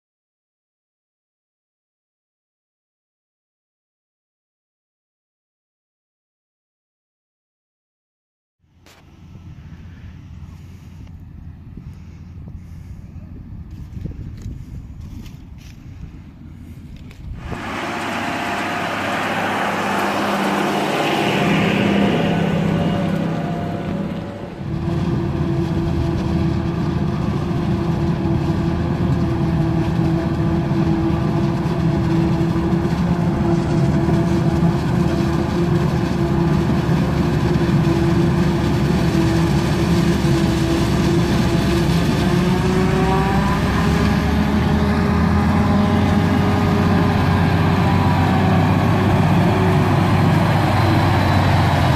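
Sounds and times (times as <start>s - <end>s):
tractor driving past: 16.4s - 51.9s
harvester engine chopping maize: 17.4s - 51.9s.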